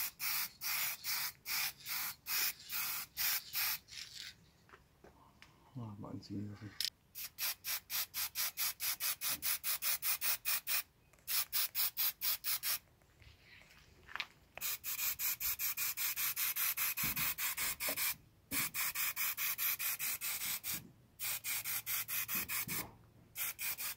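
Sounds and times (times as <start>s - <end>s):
spray-paint can hissing in pulses: 0.0s - 3.9s, 7.2s - 12.8s, 14.6s - 22.8s, 23.4s - 23.9s.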